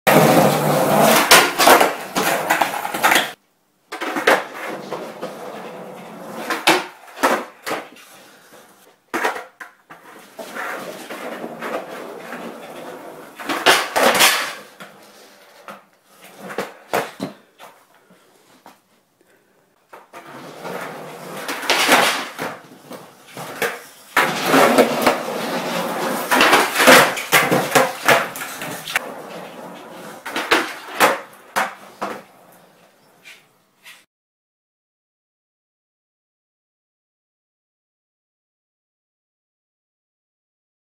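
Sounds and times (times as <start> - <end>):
skateboard sliding on grind rail: 0.1 - 3.4, 4.0 - 17.8, 20.0 - 34.1
skateboard clacks: 0.1 - 8.0, 9.1 - 15.0, 19.9 - 32.6
skateboard wheels rolling on concrete: 0.1 - 18.8, 19.8 - 34.1.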